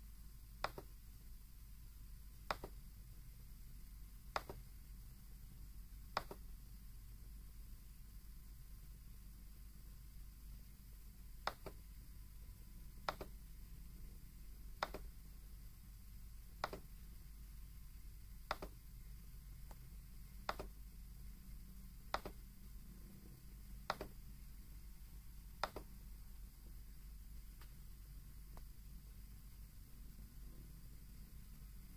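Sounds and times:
sharp clicks: 0.6s - 0.9s, 2.5s - 2.8s, 4.3s - 4.6s, 6.1s - 6.5s, 11.4s - 11.8s, 13.0s - 13.4s, 14.8s - 15.1s, 16.6s - 16.9s, 18.5s - 18.8s, 20.4s - 20.8s, 22.1s - 22.4s, 23.8s - 24.2s, 25.6s - 25.9s.

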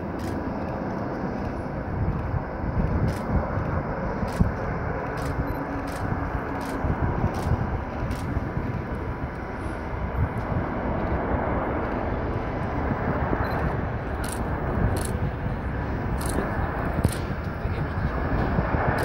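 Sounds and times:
distant jet engines rumbling: 0.0s - 19.0s.

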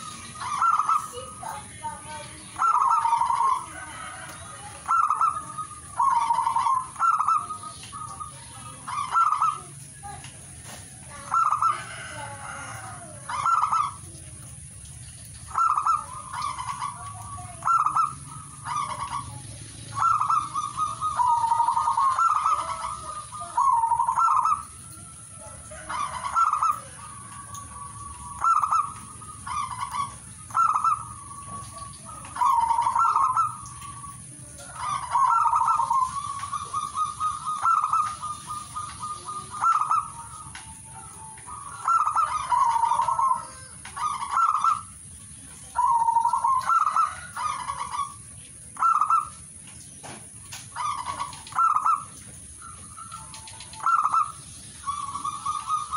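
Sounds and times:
dove cooing: 0.0s - 55.9s.

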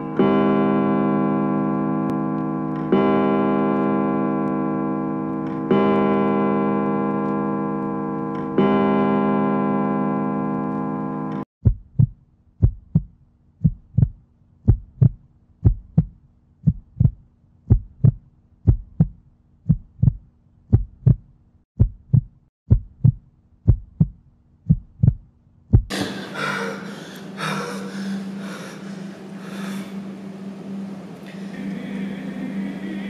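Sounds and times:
heartbeat thumps: 11.6s - 25.9s
dense wash of noise: 25.9s - 33.0s.

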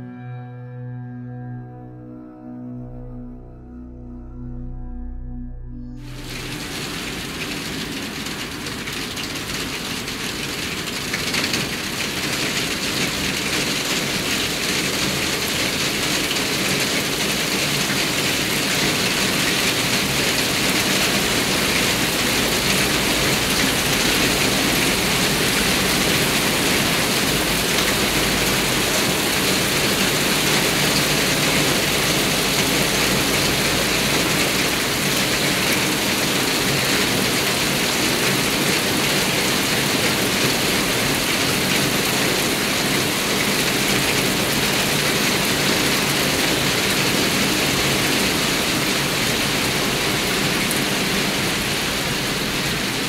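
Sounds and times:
heavy rain on pavement and cars: 6.1s - 53.0s.

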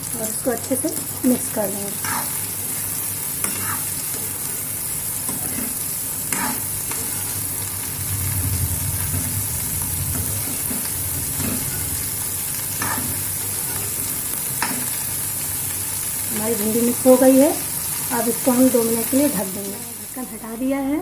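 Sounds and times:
vegetables sizzling in oil: 0.0s - 21.0s
metal spatula scraping pan: 2.0s - 2.5s, 3.4s - 4.3s, 5.3s - 8.0s, 10.1s - 15.0s.

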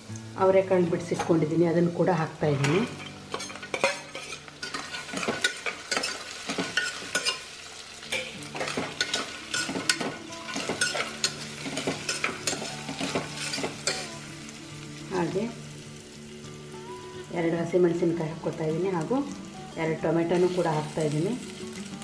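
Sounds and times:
vegetables sizzling in oil: 0.0s - 22.0s
stirring scrapes against pot: 2.6s - 7.4s.

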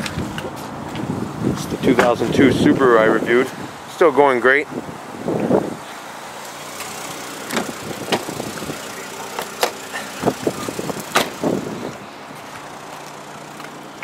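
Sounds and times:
car engine idling: 5.1s - 14.0s
sharp clicks and knocks: 7.5s - 8.3s.

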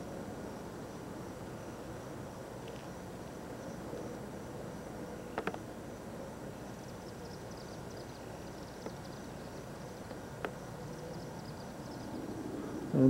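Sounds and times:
background hiss and hum: 0.0s - 13.0s
insects chirping faintly: 0.0s - 13.0s.

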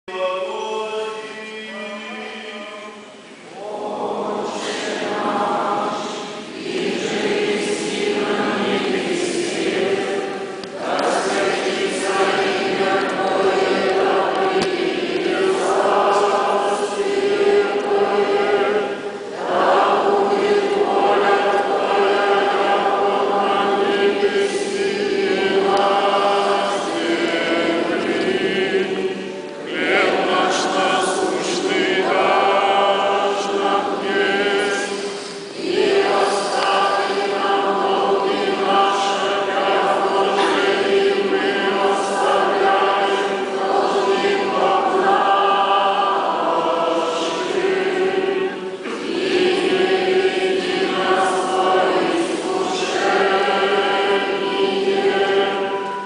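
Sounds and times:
choir singing liturgical chant: 0.0s - 56.0s.

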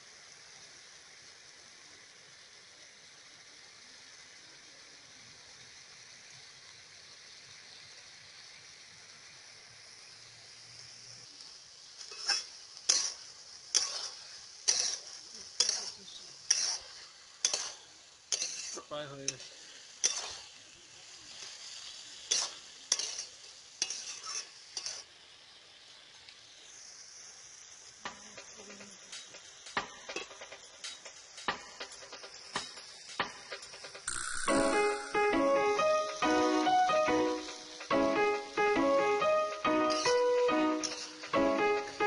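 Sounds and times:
food sizzling in pan: 0.0s - 42.0s
metal spatula scraping pan: 12.1s - 18.8s, 19.4s - 20.5s, 22.3s - 25.1s, 39.8s - 41.3s.

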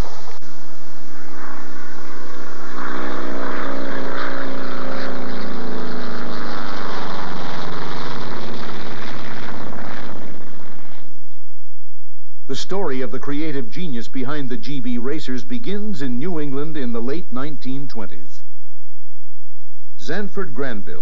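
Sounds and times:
propeller plane flying past: 1.2s - 11.3s.

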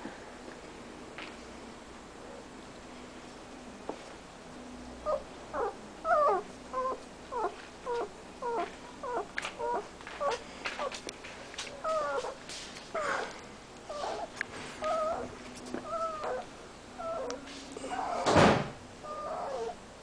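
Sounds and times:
puppies whimpering: 5.0s - 11.0s, 11.8s - 12.4s, 13.0s - 18.3s, 19.0s - 19.8s
puppy whines: 5.0s - 11.0s, 11.8s - 18.4s, 19.0s - 19.8s.

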